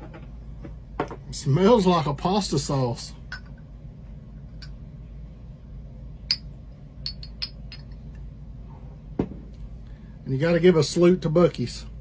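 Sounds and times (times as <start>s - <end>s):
glass bottle clinking on shot glass: 6.3s - 8.0s.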